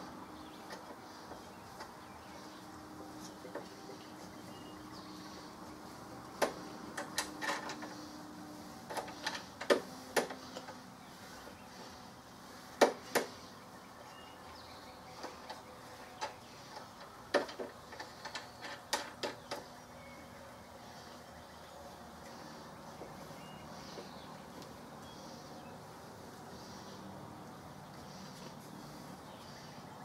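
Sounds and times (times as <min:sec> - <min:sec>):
plastic parts clicking and clacking: 0:06.4 - 0:07.9, 0:16.2 - 0:19.7.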